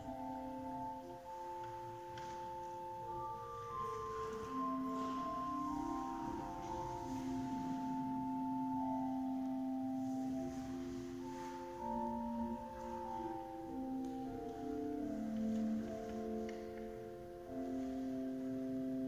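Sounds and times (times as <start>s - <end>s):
pipe organ sustained chords: 0.0s - 19.0s.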